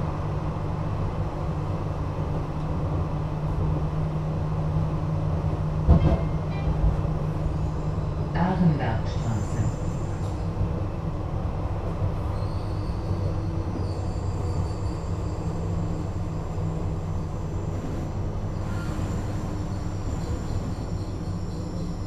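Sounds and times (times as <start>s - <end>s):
light-rail car rumbling on track: 0.0s - 22.0s.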